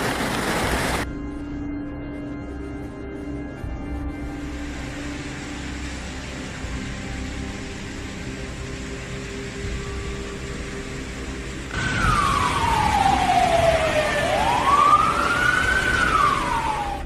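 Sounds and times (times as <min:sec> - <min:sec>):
steady background noise: 0:02.9 - 0:17.0
siren wailing: 0:11.7 - 0:17.0.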